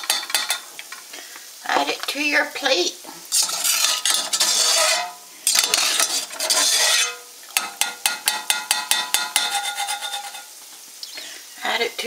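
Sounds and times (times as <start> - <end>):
metal clinks against pot: 0.0 - 0.7, 3.4 - 10.5
metal turner scraping in broth: 0.0 - 1.1, 3.3 - 10.6.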